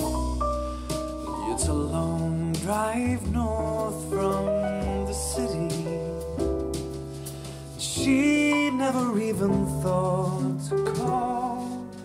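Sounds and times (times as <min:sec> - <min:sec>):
pop song over speakers: 0:01.2 - 0:06.4, 0:07.8 - 0:12.0.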